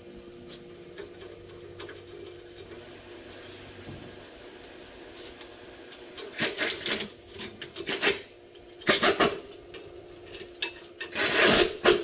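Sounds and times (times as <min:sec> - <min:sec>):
rough scraping on wheel hub: 0:11.0 - 0:11.7.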